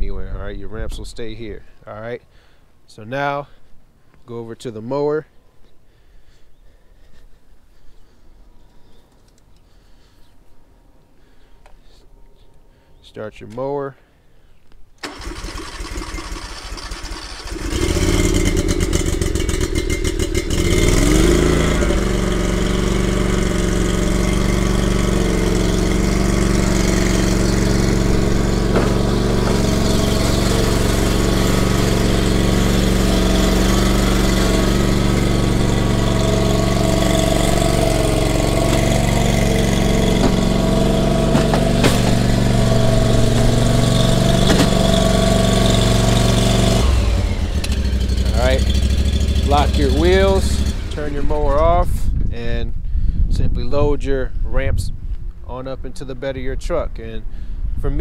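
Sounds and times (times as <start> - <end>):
mower engine cranking: 15.0 - 51.7
mower engine running: 15.0 - 52.0.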